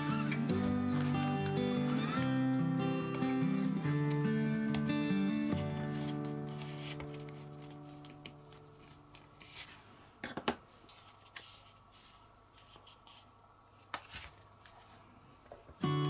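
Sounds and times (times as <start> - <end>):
soft background music: 0.0 - 9.2
paper rustling and crinkling: 5.6 - 9.9, 10.8 - 15.2.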